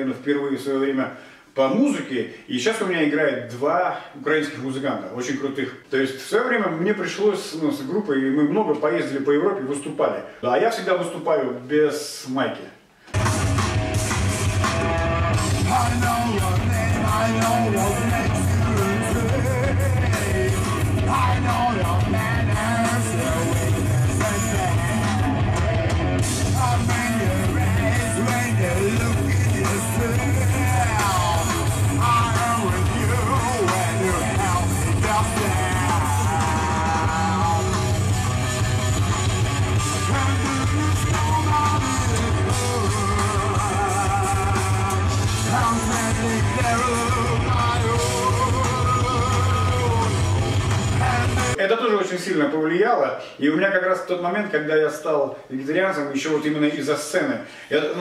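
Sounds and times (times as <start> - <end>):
drums: 13.0 - 51.6
electric guitar: 13.0 - 51.6
man singing into microphone: 15.5 - 38.0, 39.8 - 51.6.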